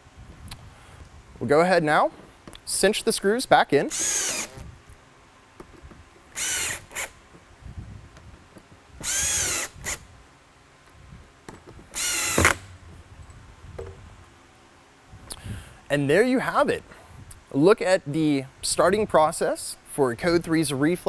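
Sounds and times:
cordless drill driving screws: 3.9 - 4.7, 6.3 - 7.2, 9.0 - 10.0, 11.9 - 12.6.

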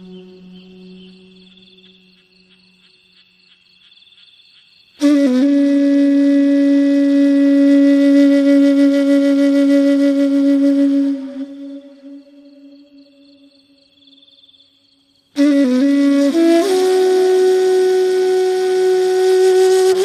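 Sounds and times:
loud low flute note: 0.0 - 2.1, 5.0 - 13.5, 15.4 - 20.0
soft high flute tones: 0.0 - 3.3, 5.0 - 20.0.

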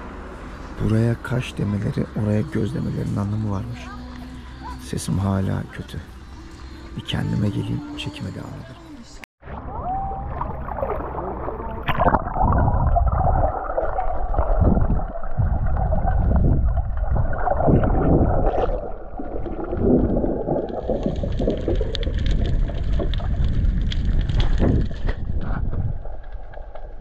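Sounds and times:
muffled water gurgling and churning: 9.4 - 27.0.

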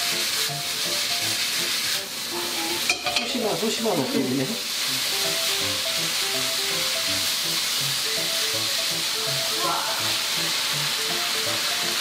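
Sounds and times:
food sizzling in hot oil: 0.0 - 12.0.

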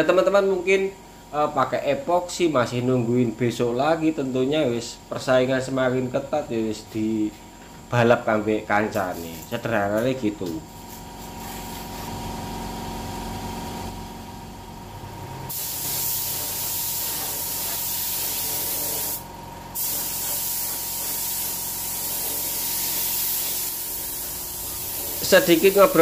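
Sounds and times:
air spray gun hissing: 8.9 - 9.5, 10.4 - 12.3, 15.5 - 26.0.

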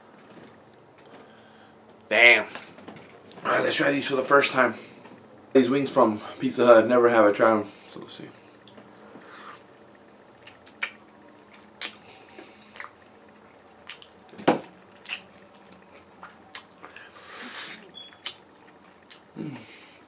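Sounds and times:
wet chewing smacks: 10.3 - 17.2, 17.8 - 19.4.

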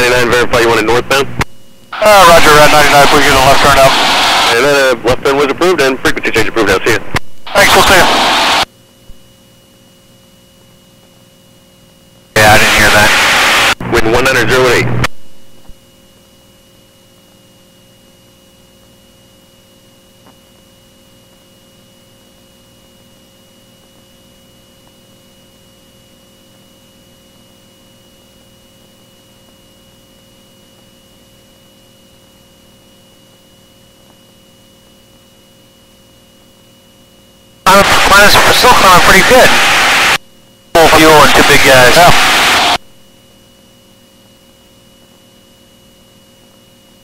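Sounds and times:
thin high whine: 0.0 - 8.7, 12.4 - 15.8, 35.4 - 47.0
electrical hum and hiss: 0.0 - 47.0.

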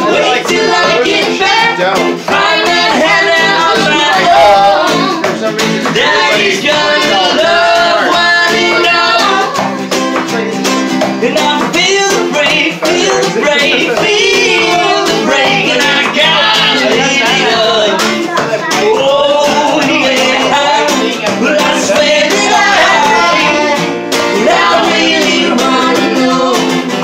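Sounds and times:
woman and man singing together: 0.0 - 9.9, 10.6 - 27.0
acoustic guitar: 0.0 - 27.0
strummed ukulele: 0.0 - 27.0.

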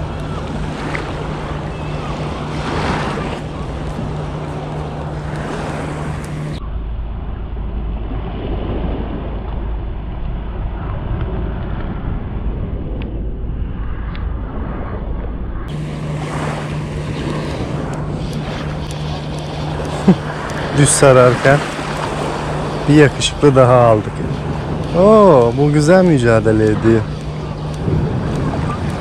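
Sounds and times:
waves lapping on pebbles: 0.0 - 6.5, 15.7 - 29.0
wind buffeting microphone: 0.0 - 29.0.

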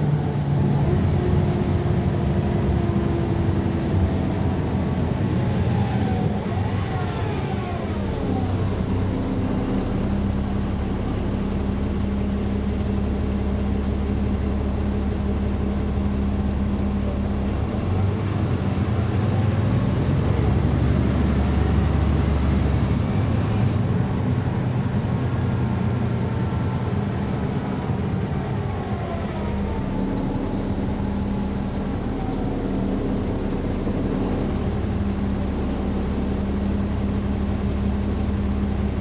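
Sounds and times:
bus diesel engine: 0.0 - 39.0
transmission whine: 5.3 - 19.4, 22.9 - 39.0.

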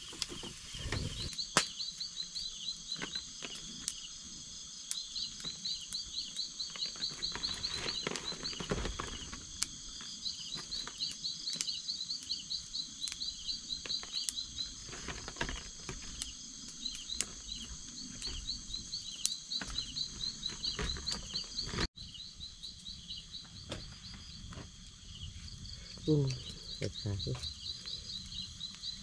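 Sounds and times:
insects trilling: 0.0 - 29.0.

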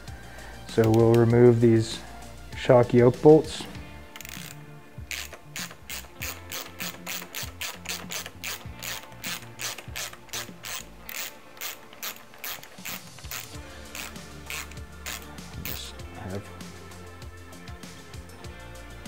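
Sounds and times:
hand ratchet clicking: 0.7 - 1.3, 4.1 - 16.0.

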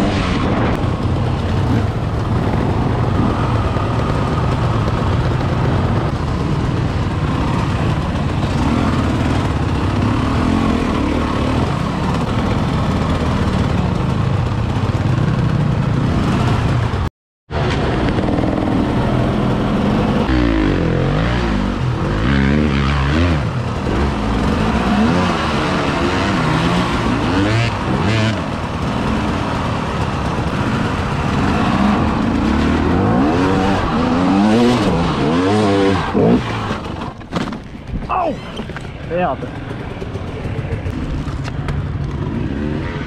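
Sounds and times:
dirt bike engine revving: 0.0 - 17.0, 17.6 - 37.2.

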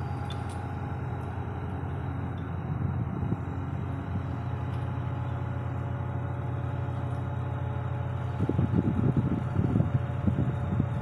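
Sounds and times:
diesel engine running: 0.0 - 11.0
wind buffeting microphone: 2.6 - 4.2, 8.3 - 11.0.

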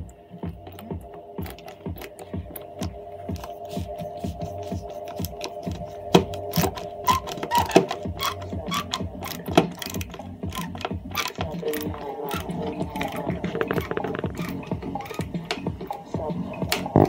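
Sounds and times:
screwdriver clicking and scraping: 0.8 - 15.6.

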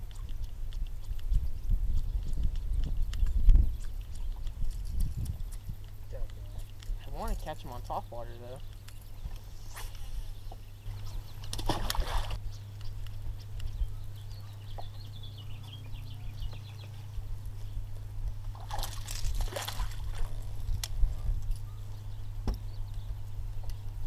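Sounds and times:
steady low hum: 0.0 - 24.0
water splashing at boat: 11.5 - 12.4, 18.5 - 20.4.

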